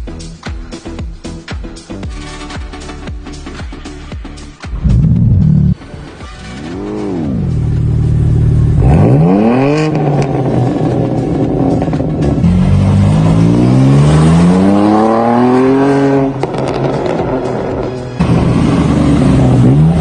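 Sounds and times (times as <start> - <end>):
car engine revving and accelerating: 4.8 - 6.0, 6.6 - 20.0.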